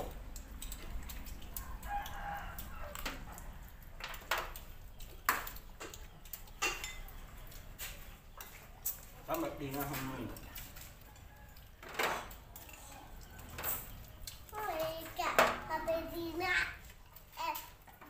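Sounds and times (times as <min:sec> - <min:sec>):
spoons clicking on ceramic plates: 0:00.0 - 0:16.1
rooster crowing: 0:01.4 - 0:03.8, 0:11.0 - 0:11.8.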